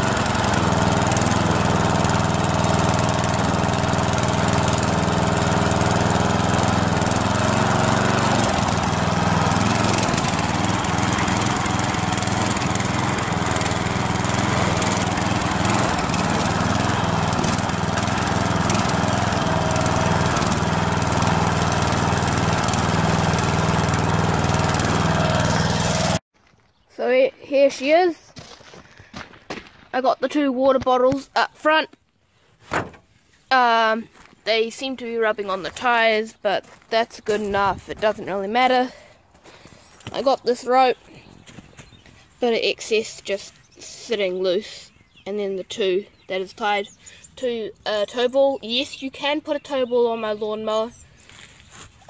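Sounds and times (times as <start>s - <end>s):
lawn mower engine running: 0.0s - 26.2s.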